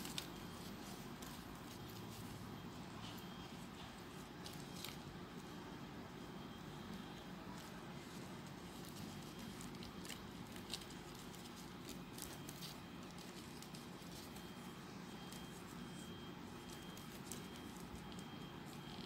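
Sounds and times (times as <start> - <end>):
paper ticks and rustles: 0.0 - 5.4, 7.5 - 14.7, 16.5 - 19.0
low background hum: 0.0 - 19.0.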